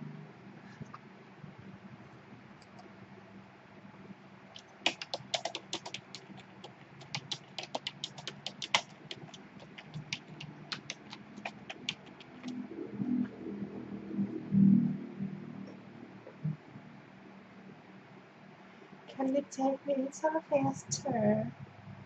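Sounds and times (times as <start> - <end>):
keyboard key clicks: 4.6 - 12.5.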